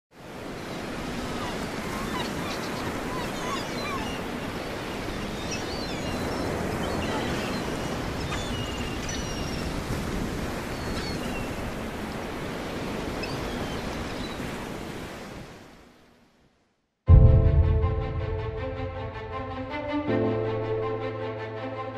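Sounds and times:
sea waves: 0.1 - 16.4, 17.1 - 21.9
wind: 0.1 - 21.8
seagulls crying: 1.1 - 11.8.

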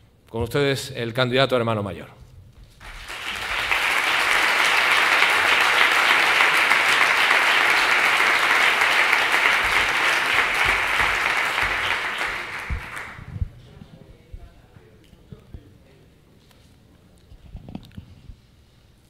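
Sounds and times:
large audience applauding: 2.8 - 13.3.

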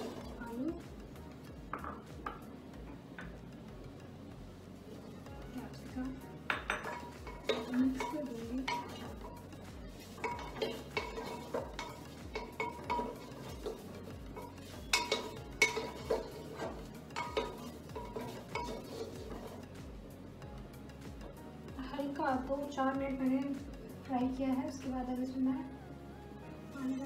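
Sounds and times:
vegetables frying: 0.0 - 0.7, 6.9 - 19.8
wooden spatula scraping clay pot: 6.8 - 9.4, 10.0 - 19.8.

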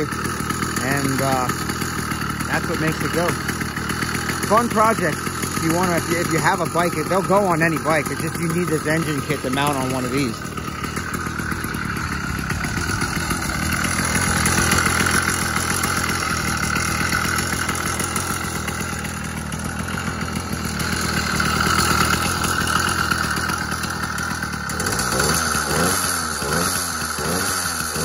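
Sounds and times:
two-stroke engine idling: 0.0 - 28.0.

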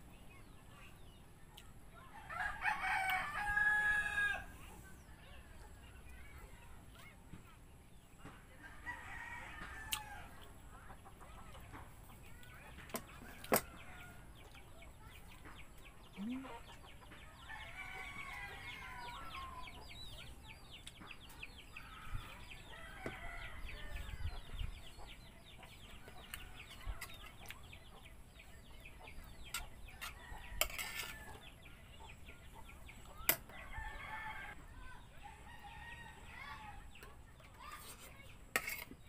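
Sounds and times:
rooster crowing: 2.3 - 4.5, 33.6 - 34.6
chickens clucking: 4.5 - 39.0.

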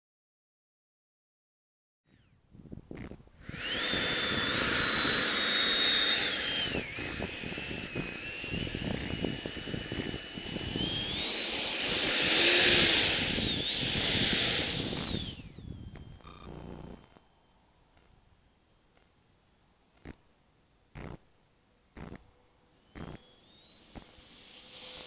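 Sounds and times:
model jet engine whining: 3.0 - 17.5, 22.0 - 25.0.

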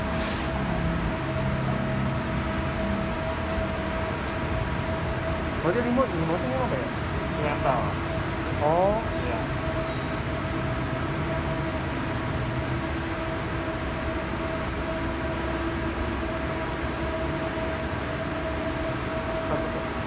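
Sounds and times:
electric fan running: 0.0 - 20.0.

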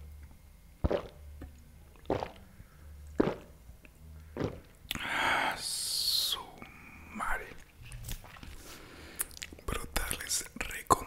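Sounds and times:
person gulping a drink: 0.8 - 2.5, 3.1 - 3.5, 4.4 - 5.0, 7.6 - 8.6, 9.2 - 9.7.

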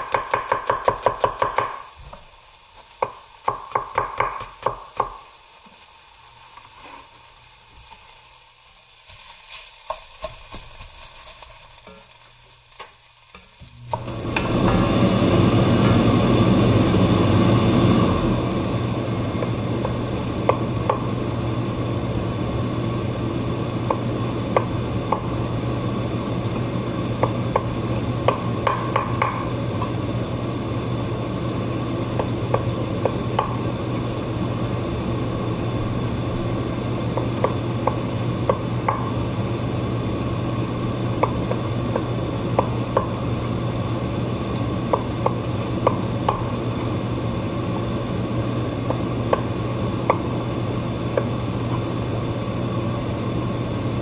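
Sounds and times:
knife tapping cutting board: 3.0 - 5.2, 23.8 - 25.3, 27.2 - 29.5, 37.1 - 39.1
steady low hum: 13.8 - 54.0.

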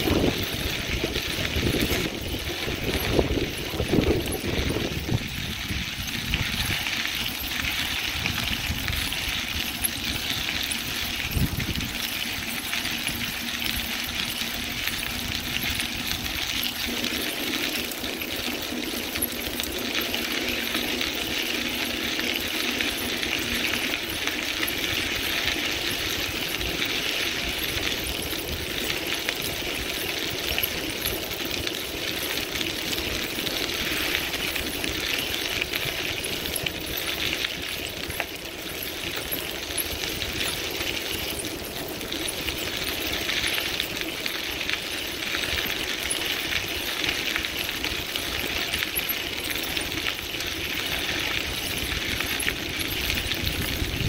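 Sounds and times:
wind on microphone: 0.0 - 12.4, 51.8 - 54.0
bicycle tyres crunching on gravel: 0.0 - 54.0.

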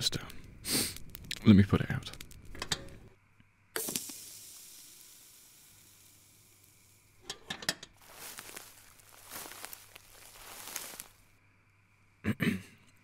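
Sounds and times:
steam hissing off embers: 0.2 - 3.1, 3.8 - 11.4
rustling: 7.9 - 11.4.

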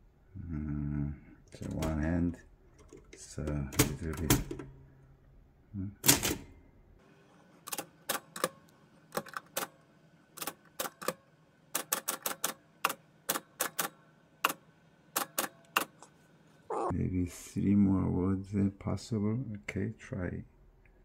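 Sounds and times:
typewriter keystrokes: 2.8 - 4.7, 6.0 - 6.5, 11.8 - 14.6.

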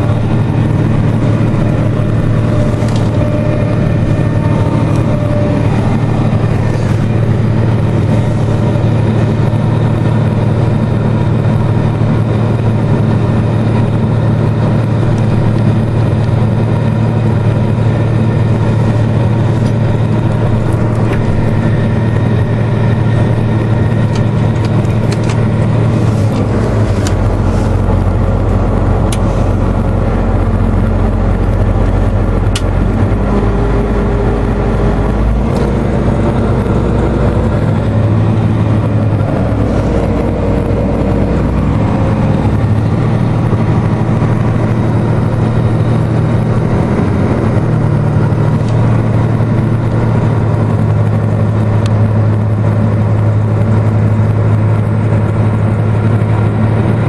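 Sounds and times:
tractor engine droning: 0.0 - 57.0.

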